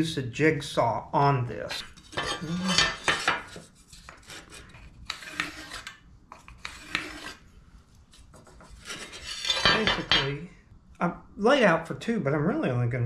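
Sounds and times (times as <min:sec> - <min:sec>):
pencil scratching wood: 0:01.7 - 0:07.4, 0:08.1 - 0:09.9
square scraping on board: 0:01.7 - 0:07.5, 0:08.1 - 0:10.2.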